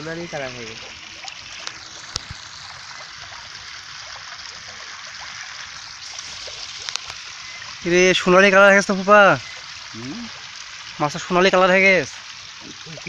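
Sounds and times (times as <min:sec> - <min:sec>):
fish splashing at water surface: 0:00.0 - 0:11.0.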